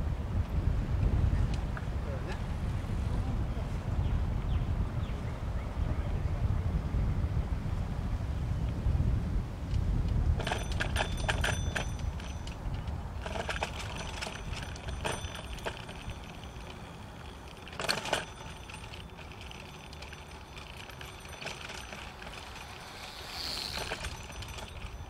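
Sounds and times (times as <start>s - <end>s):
bicycle rattling and clinking: 10.2s - 25.0s.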